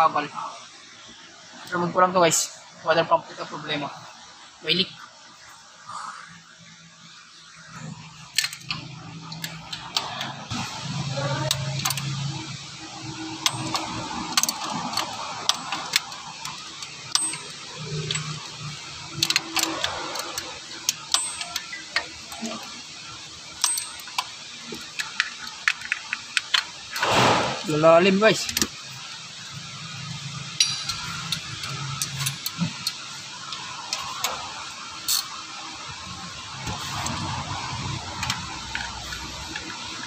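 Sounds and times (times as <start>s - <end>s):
socket wrench clicking on bolts: 11.5s - 12.2s, 13.4s - 22.1s, 23.6s - 27.1s, 35.0s - 35.4s.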